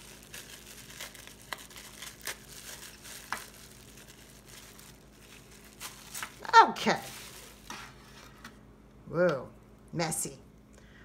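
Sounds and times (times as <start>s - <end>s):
plastic wrap crinkling: 0.0s - 8.6s.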